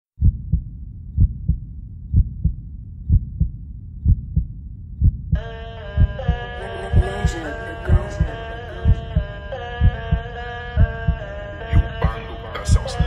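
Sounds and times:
heartbeat thumps: 0.2s - 13.0s
held musical chords: 5.4s - 13.0s.

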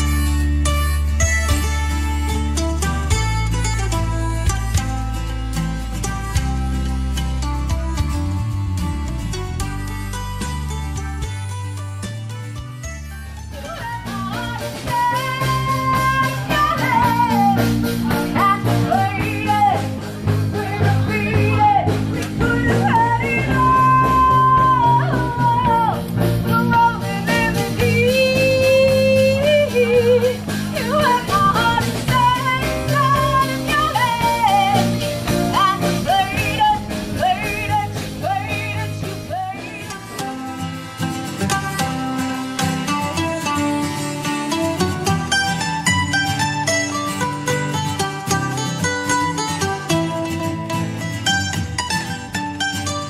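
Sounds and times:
bass guitar: 0.0s - 53.0s
electric guitar: 0.0s - 53.0s
woman singing lead: 13.5s - 40.8s.

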